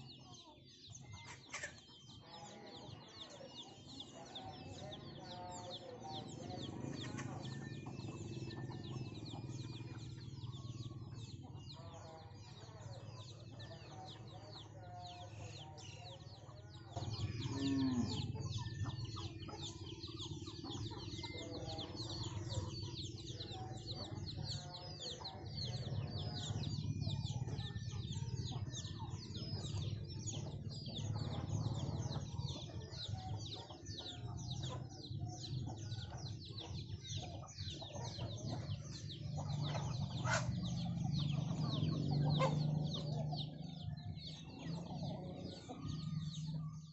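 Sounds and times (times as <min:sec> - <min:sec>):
chicks peeping: 0:00.0 - 0:46.9
hens clucking: 0:16.4 - 0:46.9.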